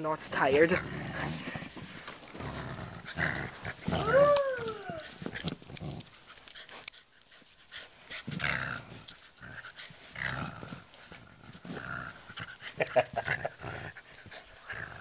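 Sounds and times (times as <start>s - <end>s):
dog growling in play: 0.0s - 6.9s, 7.7s - 15.0s
dog crying: 3.6s - 5.4s, 12.2s - 14.2s.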